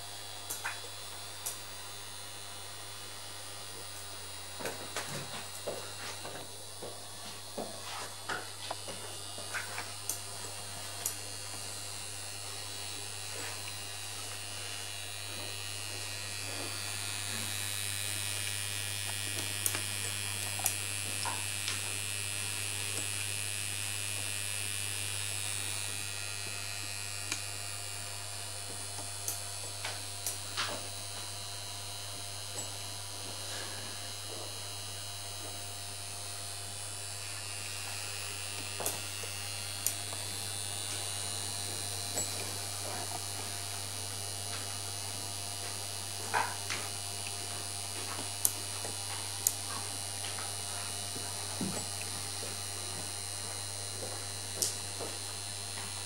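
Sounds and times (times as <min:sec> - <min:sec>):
electric motors humming: 0:00.0 - 0:56.0
high motor whir: 0:03.7 - 0:45.0.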